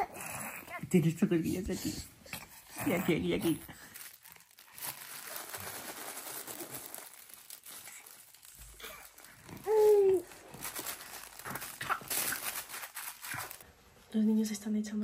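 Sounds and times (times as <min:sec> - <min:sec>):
crinkly fabric toy rustling: 0:02.6 - 0:13.7.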